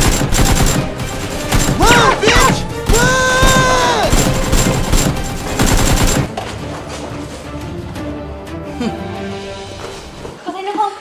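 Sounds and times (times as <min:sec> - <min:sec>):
gunfire-like shots and thuds: 0:00.0 - 0:06.3
action background music: 0:00.0 - 0:10.3
held yell: 0:01.8 - 0:04.1.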